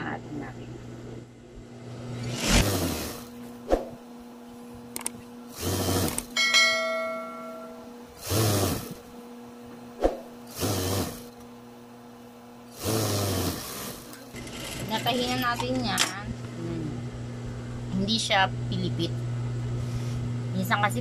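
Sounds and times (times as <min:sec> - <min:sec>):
sewing machine motor humming: 0:02.1 - 0:03.6, 0:05.0 - 0:06.4, 0:08.1 - 0:09.1, 0:10.4 - 0:11.5, 0:12.7 - 0:15.6
sewing machine stitching: 0:05.6 - 0:06.3, 0:10.5 - 0:11.3, 0:12.8 - 0:15.4
bell-like notification chime: 0:06.4 - 0:07.9.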